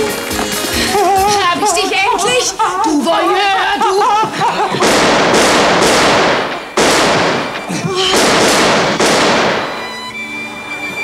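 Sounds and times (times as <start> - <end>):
pistol shots: 4.8 - 10.0
orchestral strings: 9.6 - 11.0.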